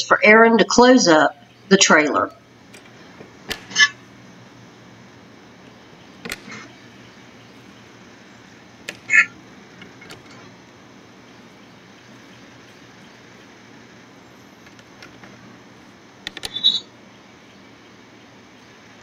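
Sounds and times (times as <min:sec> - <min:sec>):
metal door latch clanking: 0:02.7 - 0:04.0, 0:06.2 - 0:06.8, 0:08.8 - 0:10.6.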